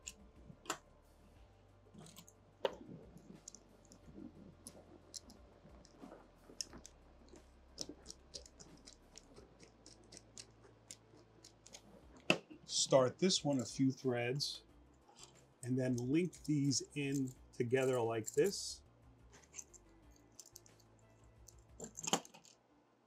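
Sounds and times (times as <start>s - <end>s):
small metal hardware clicking: 19.4s - 20.9s, 21.5s - 22.5s.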